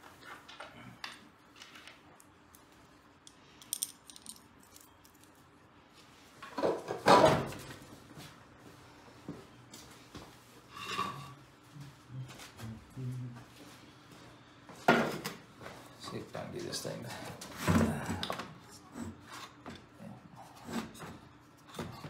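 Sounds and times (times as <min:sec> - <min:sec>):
metal parts clinking: 0:03.3 - 0:05.3.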